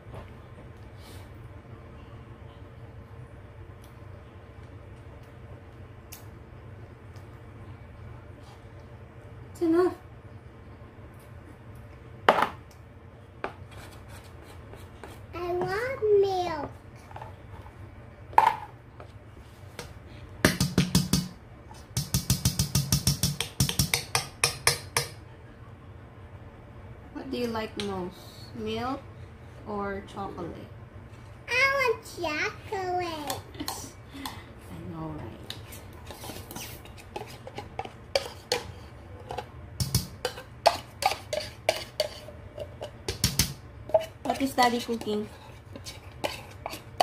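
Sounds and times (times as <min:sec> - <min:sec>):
utensil clinking in metal bowl: 0:37.1 - 0:45.2.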